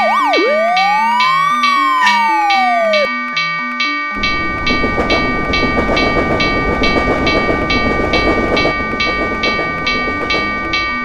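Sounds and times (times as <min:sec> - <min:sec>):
railroad crossing bell ringing: 0:00.0 - 0:11.0
passing train rumble and rattle: 0:04.2 - 0:11.0.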